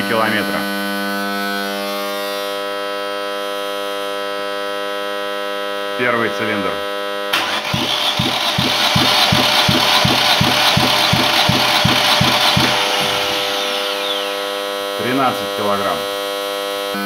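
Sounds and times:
engine cranking on starter motor: 7.3s - 15.0s
starter whine: 7.3s - 15.6s.

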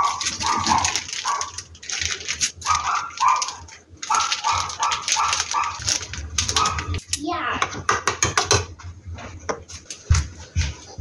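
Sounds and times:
dog barking: 0.0s - 1.6s, 2.6s - 6.0s, 6.6s - 7.0s
plastic packet crinkling: 0.0s - 7.0s.

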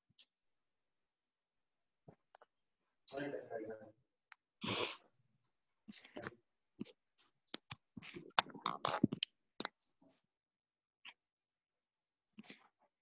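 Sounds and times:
microphone clicks and rustling: 6.0s - 9.9s.

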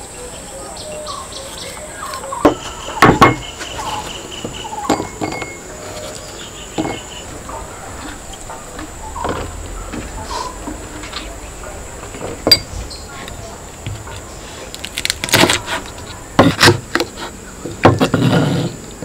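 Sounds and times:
insects chirring: 0.0s - 19.0s
utensils clinking on ceramic bowls: 4.8s - 6.0s.

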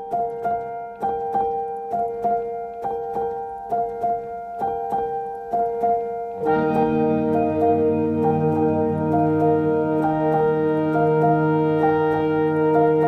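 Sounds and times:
low sustained chords: 6.4s - 13.0s.

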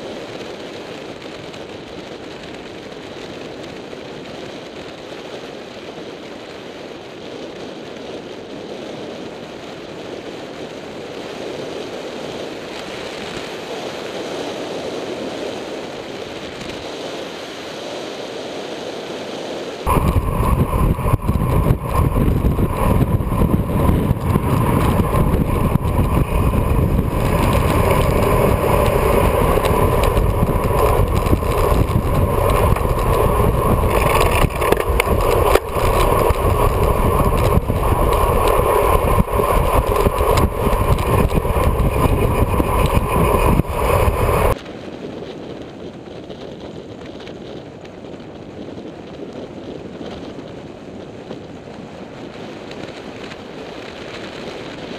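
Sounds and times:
bicycle road noise: 0.0s - 54.9s
wind buffeting microphone: 19.8s - 54.9s.

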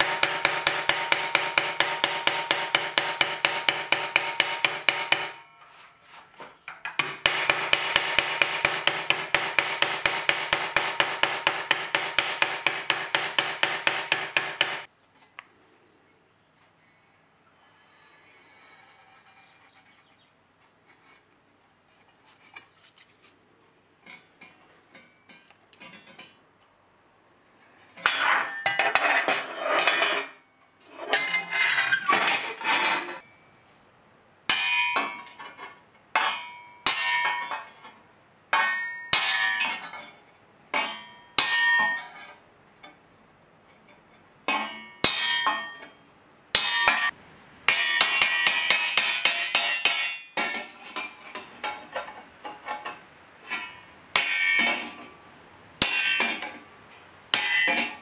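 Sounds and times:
hammer striking steel plate: 0.0s - 5.7s, 6.9s - 14.9s, 34.5s - 35.3s, 36.2s - 37.7s, 38.6s - 39.9s, 40.8s - 42.1s, 44.5s - 50.7s, 53.5s - 55.0s, 55.8s - 56.6s, 57.3s - 58.0s.

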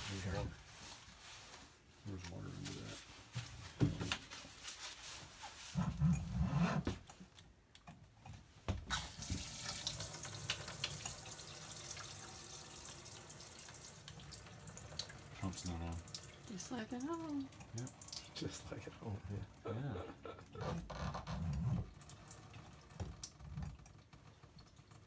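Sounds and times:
water running into sink: 8.9s - 19.6s.

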